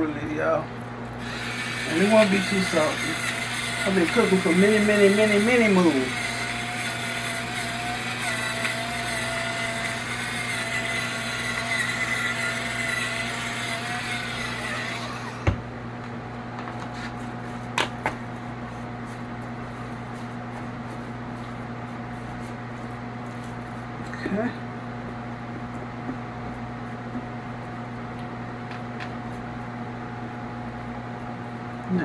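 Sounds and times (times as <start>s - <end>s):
electric pepper mill whining: 1.2s - 15.7s.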